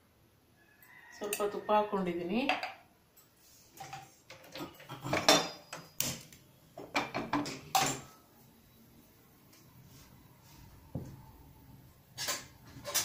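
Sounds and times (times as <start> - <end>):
dishes and utensils clinking: 2.5 - 6.2, 6.8 - 8.2, 12.2 - 13.0.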